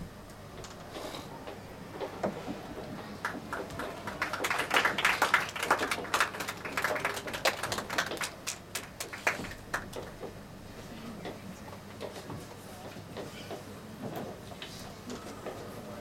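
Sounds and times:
children's feet tapping on stage: 0:02.0 - 0:05.0.

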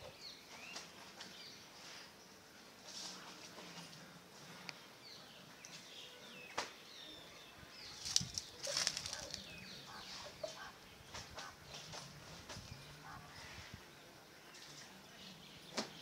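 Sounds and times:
birds chirping: 0:00.0 - 0:16.0
rustling or flapping: 0:08.0 - 0:09.5.

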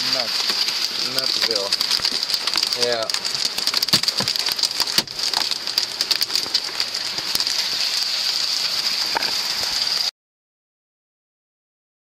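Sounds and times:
hailstones striking hard surfaces: 0:00.0 - 0:10.1.

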